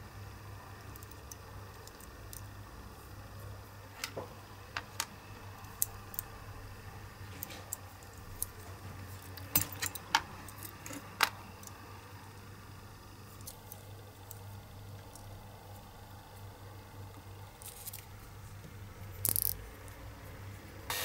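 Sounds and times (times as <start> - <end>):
low steady hum: 0.0 - 21.0
metal toy parts clinking: 9.2 - 11.2, 19.2 - 19.6.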